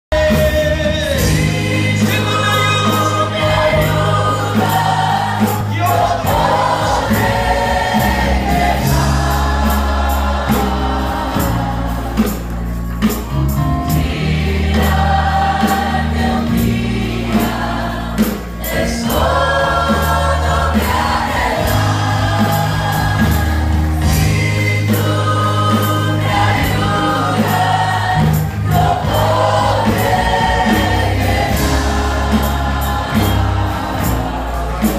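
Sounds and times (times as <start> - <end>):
congregation singing worship song: 0.1 - 34.9
live band with bass and drums: 0.1 - 34.9.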